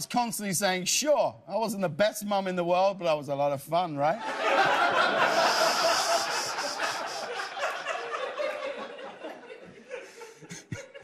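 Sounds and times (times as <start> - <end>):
audience laughing: 4.2 - 11.0.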